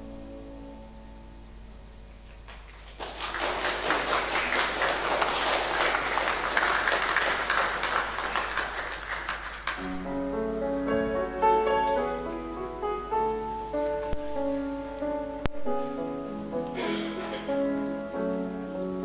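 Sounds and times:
congregation applauding: 2.4 - 10.1
keyboard music: 9.8 - 19.0.

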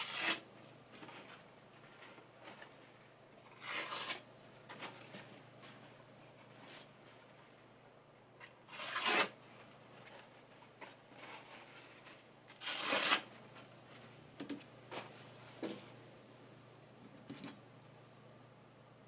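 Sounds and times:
paper towel rustling on knife: 8.7 - 15.7.

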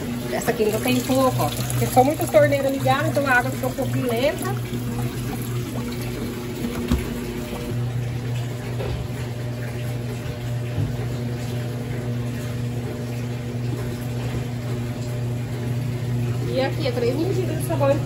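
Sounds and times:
washing machine hum: 0.0 - 18.0
water rushing into tub: 0.0 - 18.0.

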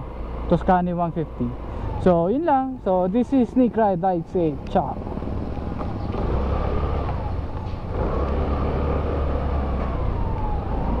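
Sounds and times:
scooter engine running: 4.5 - 9.4.

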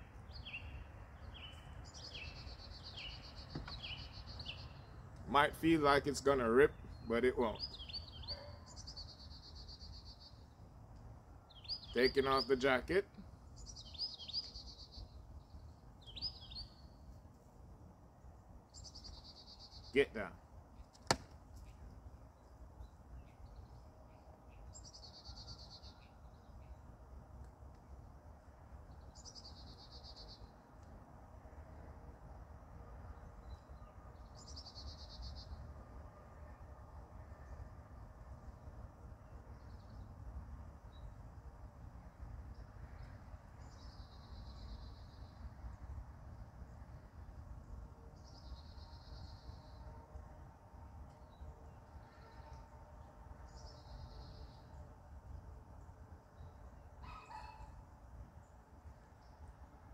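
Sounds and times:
songbird trilling song: 0.0 - 5.3, 6.2 - 10.6, 11.4 - 17.0, 18.7 - 20.0, 21.6 - 26.8, 28.9 - 30.6, 42.5 - 45.5.

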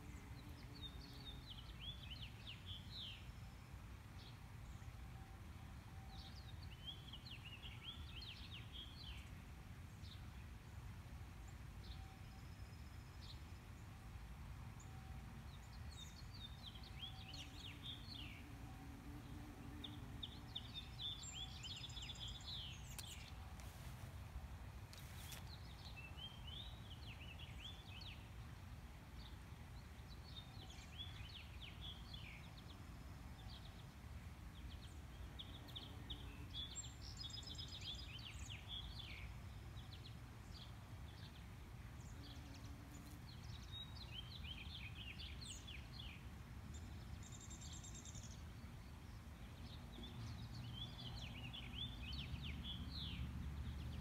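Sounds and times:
small birds chirping: 19.2 - 24.0, 34.6 - 54.0.

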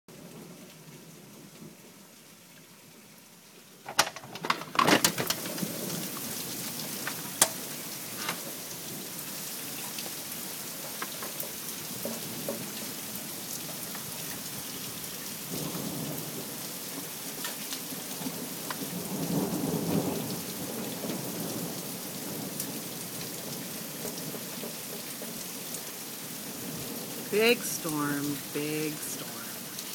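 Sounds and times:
heavy rain pouring: 0.1 - 29.9
low rumble of thunder: 15.4 - 17.2, 18.0 - 25.5.

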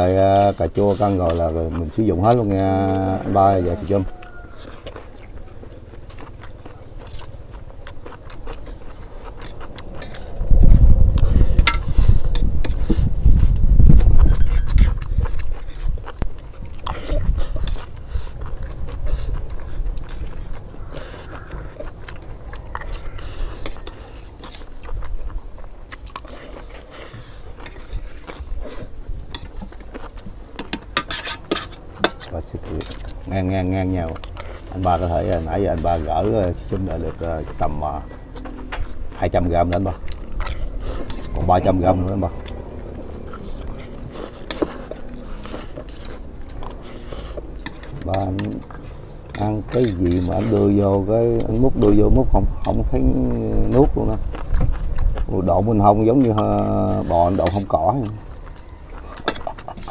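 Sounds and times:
chewing and crunching: 0.0 - 59.9
loud low rumble: 9.8 - 14.2
metal spoons scraping trays: 30.6 - 33.0.

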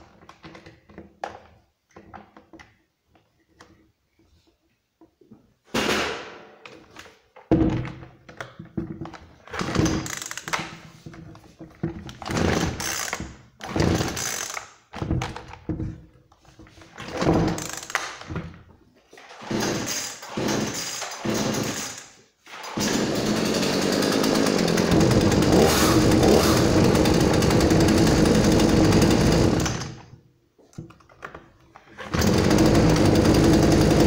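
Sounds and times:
chainsaw recoil starter pulls: 9.6 - 10.5, 12.4 - 13.2, 13.8 - 14.7, 17.5 - 18.2, 19.4 - 30.1, 32.0 - 34.0.

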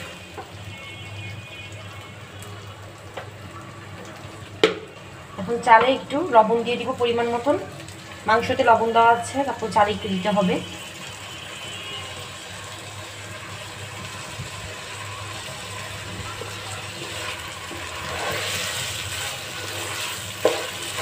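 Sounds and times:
spatula stirring rice in a pan: 16.4 - 21.0.

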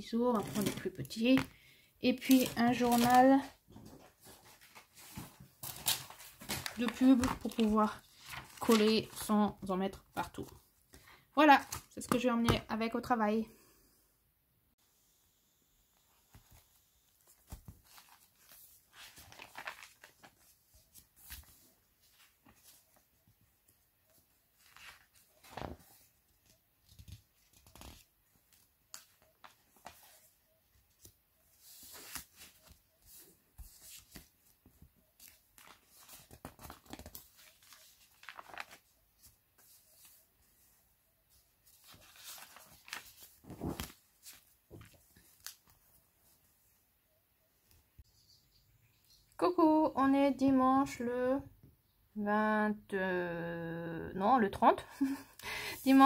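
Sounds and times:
paper pages rustling: 0.3 - 1.5, 2.1 - 10.9, 16.2 - 46.5.

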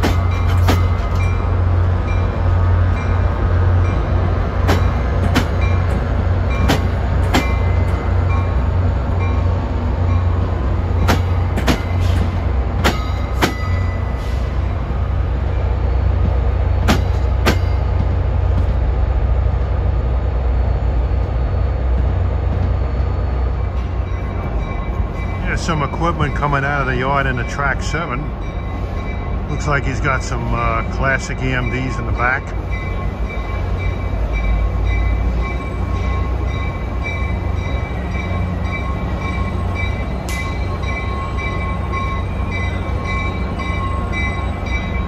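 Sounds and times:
train wheels clicking over joints: 0.0 - 3.2, 3.8 - 15.2, 16.1 - 18.8
diesel locomotive rumbling: 0.0 - 45.0.

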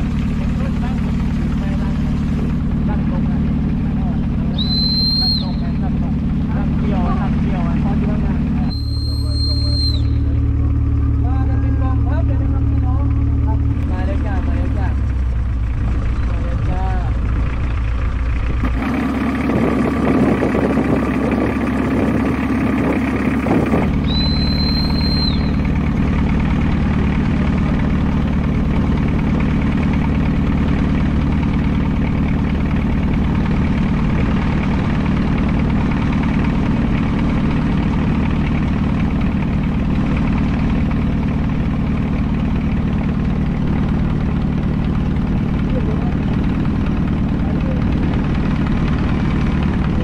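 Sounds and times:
boat engine running: 0.0 - 50.0
high whistle-like tone: 4.6 - 5.7, 8.7 - 10.3, 24.0 - 25.7.

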